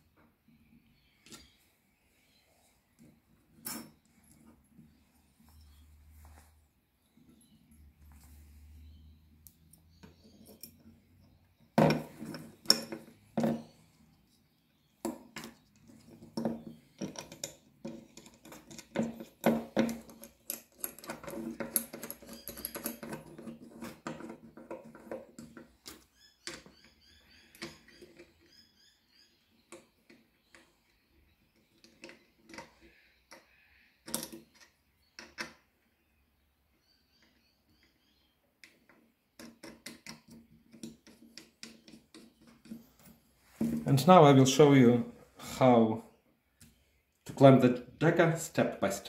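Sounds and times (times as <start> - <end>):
metal parts clicking and knocking: 9.9 - 13.7, 15.0 - 28.4, 31.5 - 35.7, 38.6 - 43.8.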